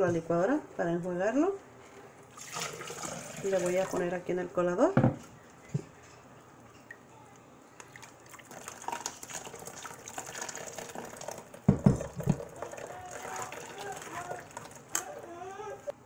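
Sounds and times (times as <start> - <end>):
water splashing and trickling: 2.3 - 4.1, 7.8 - 15.0.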